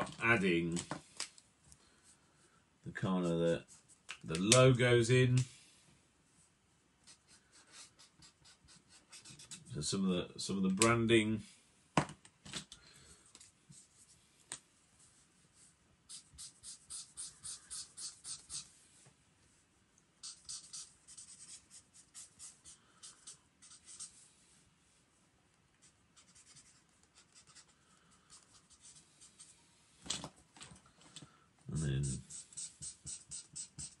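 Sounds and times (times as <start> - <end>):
marker scribbling on paper: 7.1 - 9.7, 16.1 - 18.7, 20.2 - 24.2, 25.8 - 27.7, 31.8 - 34.0.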